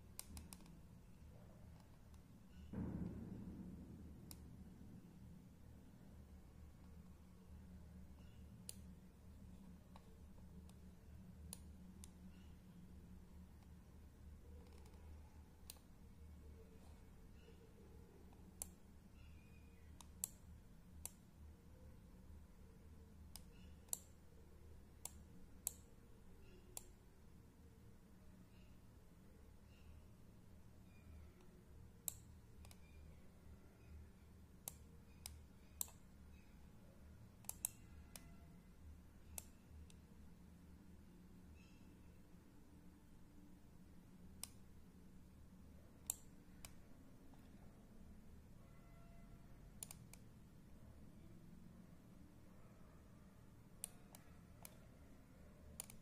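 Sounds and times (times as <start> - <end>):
faint low hum: 0.0 - 56.0
computer mouse clicks: 0.2 - 0.9, 8.2 - 8.9, 9.8 - 12.6, 14.5 - 16.0, 16.6 - 21.3, 23.3 - 24.2, 25.0 - 27.0, 30.8 - 33.2, 34.6 - 36.6, 37.4 - 38.4, 39.2 - 40.1, 44.4 - 44.7, 46.0 - 47.8, 49.7 - 50.3, 53.8 - 54.9, 55.7 - 56.0.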